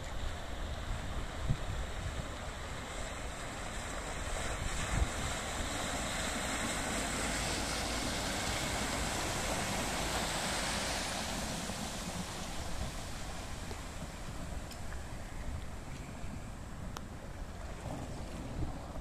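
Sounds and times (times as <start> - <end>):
wind buffeting microphone: 0.0 - 2.8, 4.2 - 5.8, 11.3 - 19.0
watercraft hull and wake rushing: 0.0 - 19.0.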